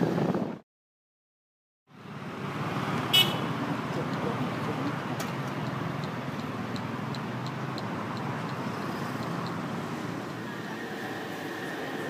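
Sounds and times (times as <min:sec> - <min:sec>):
street traffic: 0:01.9 - 0:12.0
light ticks: 0:05.2 - 0:08.6.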